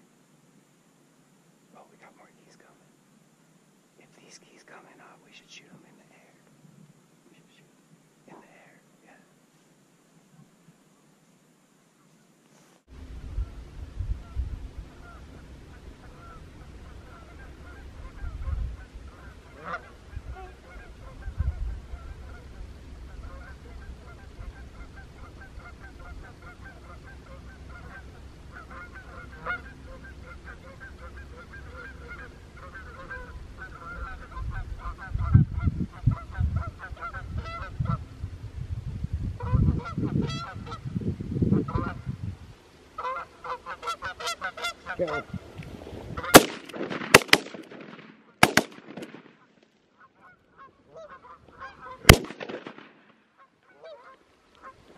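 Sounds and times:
geese honking: 15.0s - 35.4s, 39.4s - 40.9s, 41.5s - 42.1s, 43.0s - 45.5s, 46.1s - 47.3s, 49.4s - 52.6s, 53.4s - 54.9s.

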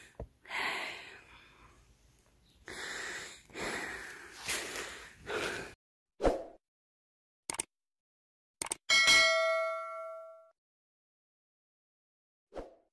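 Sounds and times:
heavy wheezy breathing: 2.6s - 5.8s.

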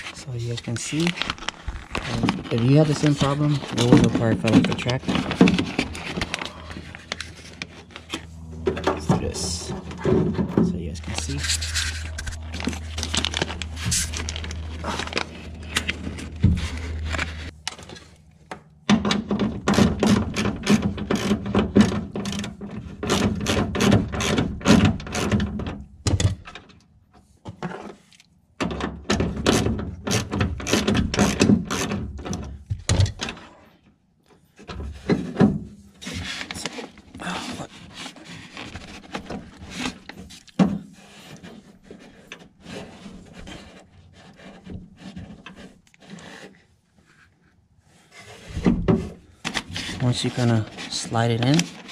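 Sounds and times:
low steady hum: 0.0s - 21.8s.

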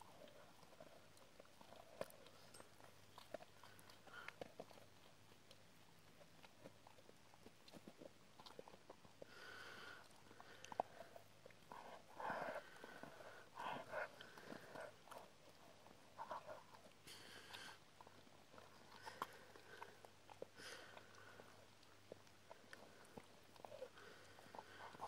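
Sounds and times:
dog breathing: 1.6s - 4.9s, 9.2s - 21.9s, 22.5s - 25.0s.

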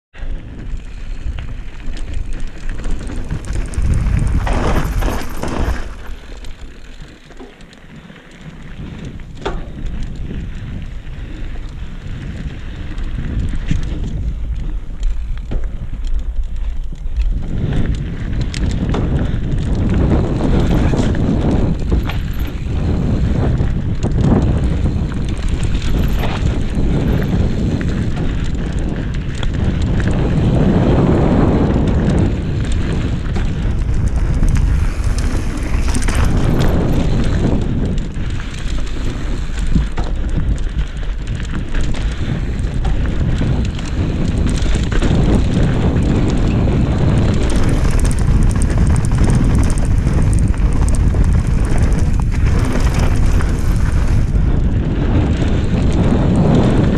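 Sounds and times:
bike tyres rolling over dirt: 0.1s - 56.9s
wind buffeting microphone: 0.1s - 56.9s
bike knocks and rattles: 0.2s - 56.9s.

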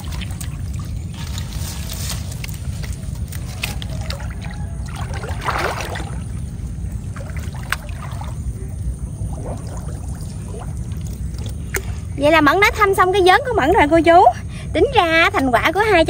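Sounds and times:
dry palm fronds crackling: 0.0s - 6.0s
water splashing and sloshing: 0.0s - 14.2s
steady low rumble: 0.0s - 16.0s.

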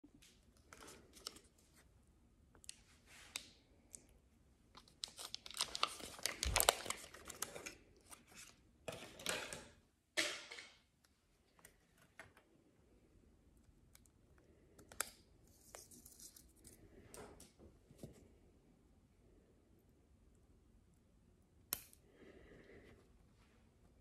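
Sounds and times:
foil packet tearing and crinkling: 4.8s - 8.6s.

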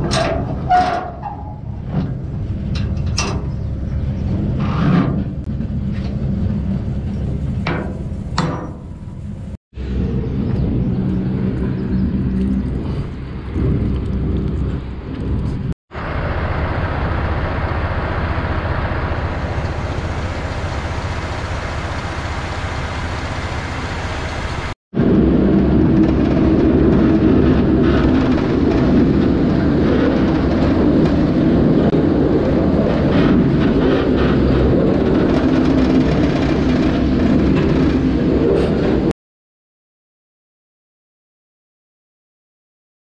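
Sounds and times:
road noise: 0.0s - 39.1s
truck diesel engine: 0.0s - 39.1s.

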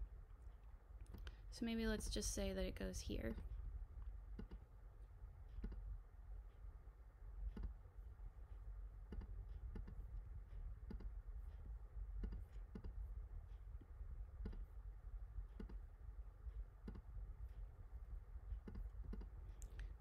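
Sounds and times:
steady low hum: 0.0s - 20.0s
computer mouse clicks: 4.4s - 4.6s, 5.6s - 5.9s, 7.5s - 7.8s, 9.1s - 10.1s, 10.8s - 11.2s, 12.2s - 13.1s, 14.4s - 14.7s, 15.5s - 15.9s, 16.8s - 17.1s, 18.6s - 20.0s.

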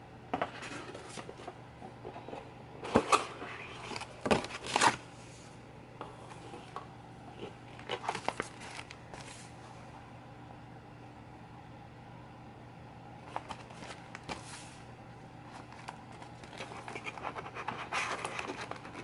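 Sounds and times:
low steady hum: 0.0s - 19.0s
plastic pouch crinkling: 7.8s - 9.2s.

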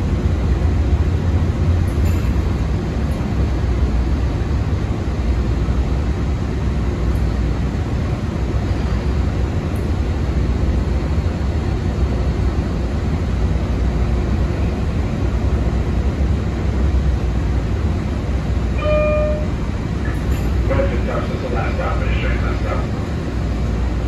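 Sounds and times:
light-rail car rumbling on track: 0.0s - 24.0s
short electronic tone: 18.8s - 19.6s.

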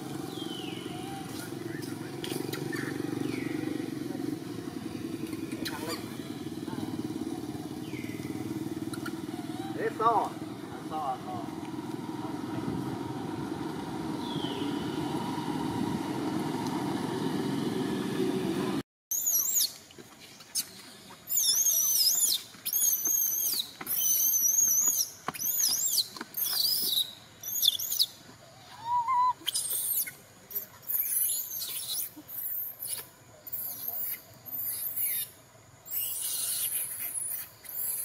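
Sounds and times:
infant monkey crying: 9.2s - 10.0s, 28.7s - 30.1s.

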